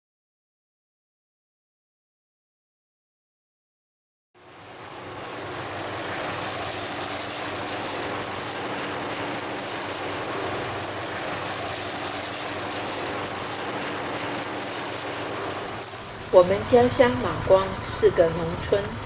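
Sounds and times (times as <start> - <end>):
harvester engine hum: 4.8 - 19.0.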